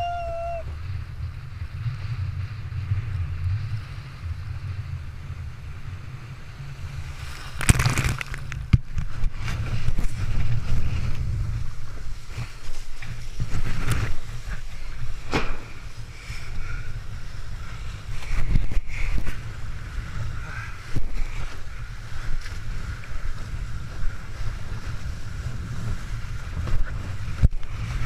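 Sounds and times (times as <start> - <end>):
wind buffeting microphone: 0.0 - 28.0
water splashing against board: 7.4 - 9.3.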